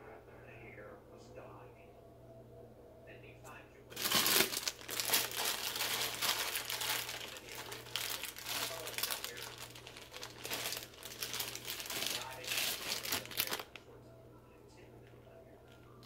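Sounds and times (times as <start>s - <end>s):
bag crinkling: 3.9s - 13.8s.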